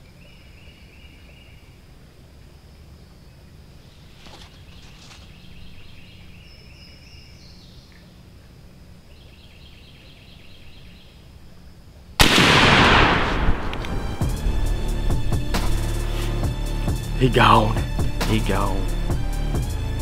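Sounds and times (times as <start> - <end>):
songbirds singing faintly: 0.0 - 20.0
loud shotgun shot echoing: 12.2 - 14.3.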